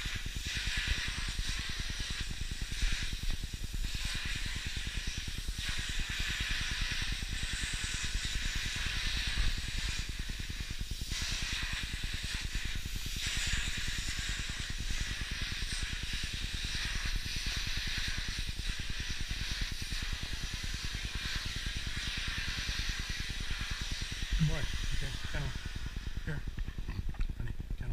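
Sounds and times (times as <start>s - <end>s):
vacuum cleaner running: 12.2s - 27.0s.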